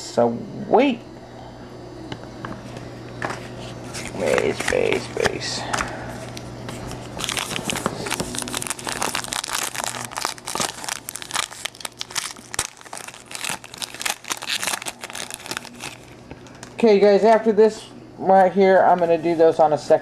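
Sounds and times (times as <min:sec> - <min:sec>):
foil wrapper crinkling: 0:06.3 - 0:16.9.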